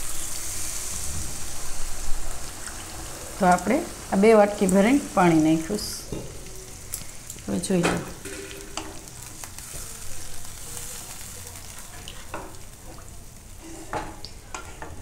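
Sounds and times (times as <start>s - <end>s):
liquid hissing in a pan: 0.0s - 15.0s
spatula scraping a pan: 13.6s - 15.0s.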